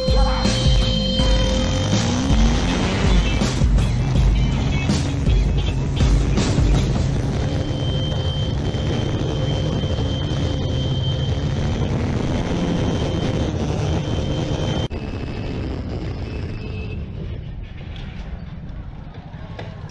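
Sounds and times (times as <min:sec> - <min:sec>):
background music: 0:00.0 - 0:12.2
motorbike engine running: 0:00.0 - 0:14.9.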